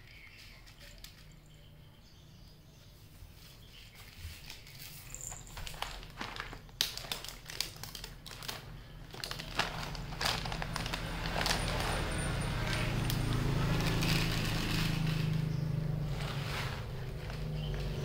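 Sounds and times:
cat crunching food: 5.8 - 16.0.

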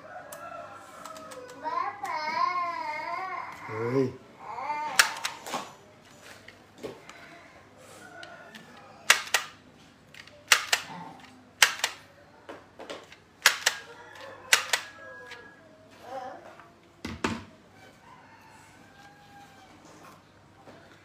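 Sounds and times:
price labeling gun clicking: 5.0 - 5.4, 9.1 - 12.1, 13.1 - 13.9, 14.5 - 14.9.

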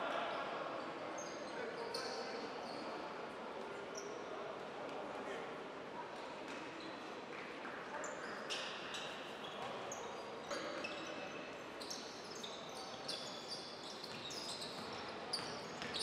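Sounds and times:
arena crowd hubbub: 0.0 - 16.0
shoes squeaking on hardwood court: 8.0 - 16.0.

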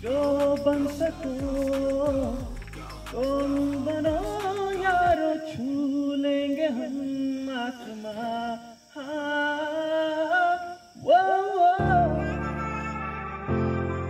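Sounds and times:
soft music with low chords: 0.0 - 5.2
person singing unaccompanied: 0.0 - 14.0.

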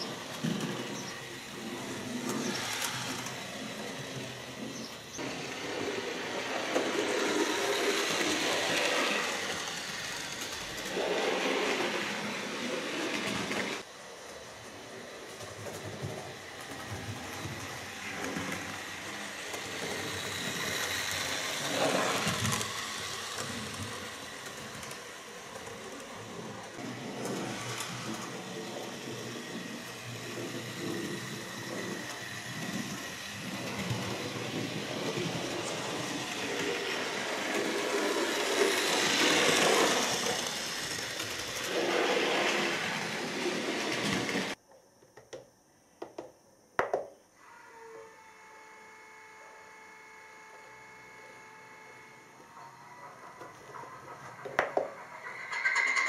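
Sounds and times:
model train motor whirr: 0.0 - 44.6, 47.4 - 56.0
wheels rattling on track: 53.0 - 56.0.

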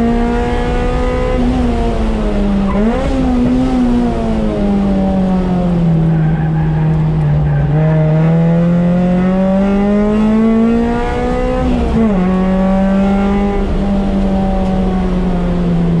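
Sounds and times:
car engine from inside cabin: 0.0 - 16.0.

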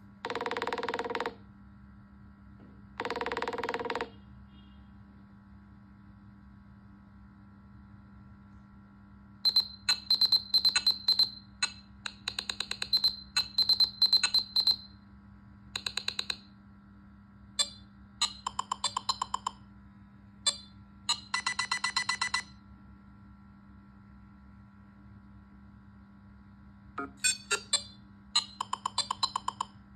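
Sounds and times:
phone ringtone bleeps: 9.5 - 11.4, 12.8 - 14.8, 20.5 - 22.5, 27.0 - 29.7.

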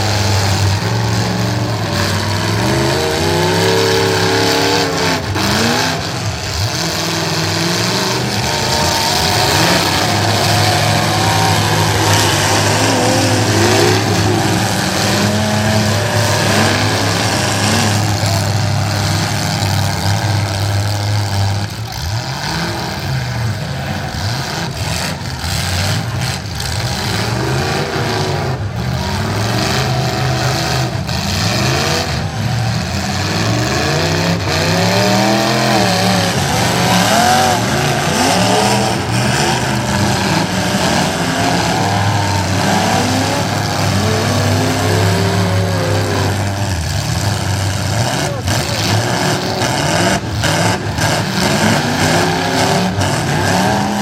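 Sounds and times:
cars crashing bangs: 0.0 - 20.7
car engines revving: 0.0 - 54.0.

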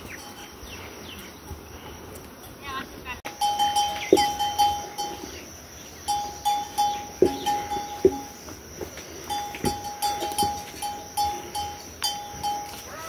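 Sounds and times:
livestock bell clanking: 0.0 - 1.0, 3.3 - 8.5, 9.2 - 13.0
dull knocks: 7.1 - 10.7.

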